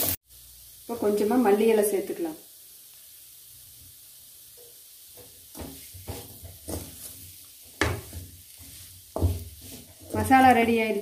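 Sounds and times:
wooden spoon scraping metal pan: 5.2 - 11.0.

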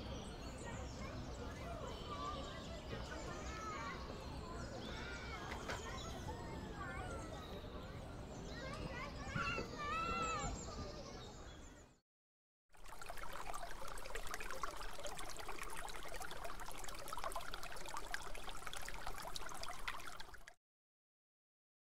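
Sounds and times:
stream babbling over stones: 12.8 - 20.6.

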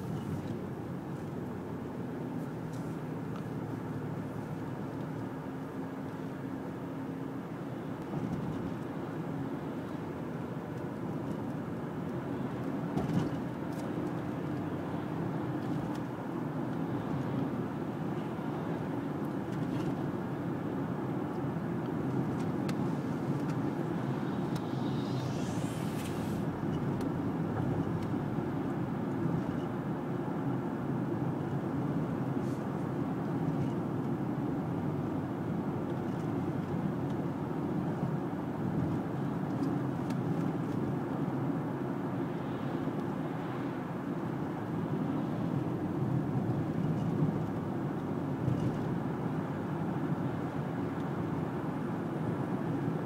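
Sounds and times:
car interior road and engine noise: 0.0 - 53.0
rising high-pitched sweep: 23.2 - 28.4.

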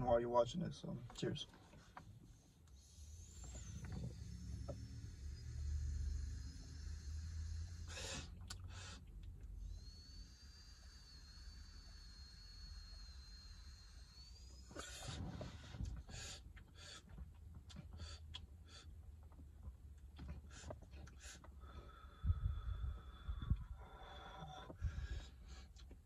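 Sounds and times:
man inhaling from vape pen: 2.7 - 9.1, 10.2 - 17.2, 20.4 - 25.8
man exhaling vapor: 4.2 - 9.0, 20.5 - 25.6.

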